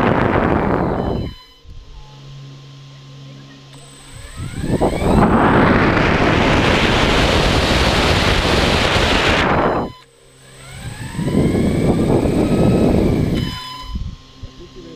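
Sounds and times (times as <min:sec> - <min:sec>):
model aircraft motors rushing: 0:00.0 - 0:01.5, 0:03.8 - 0:14.9
motor whine: 0:00.0 - 0:14.9.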